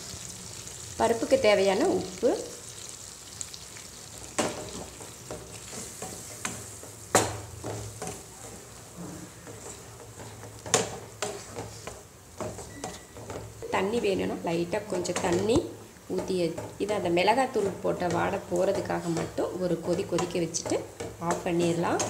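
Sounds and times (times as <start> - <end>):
soft sizzle: 0.0 - 22.0
wooden spatula stirring in pan: 0.6 - 22.0
spatula knocking against pan: 14.8 - 22.0.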